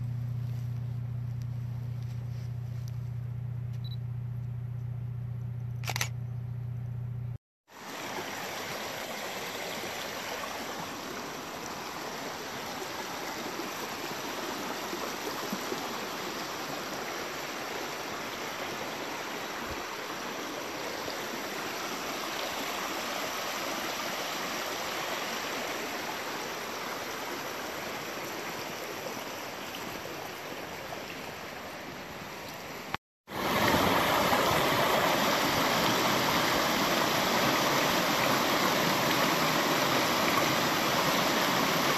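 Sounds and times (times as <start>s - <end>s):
creek water splashing over stones: 33.3s - 41.9s.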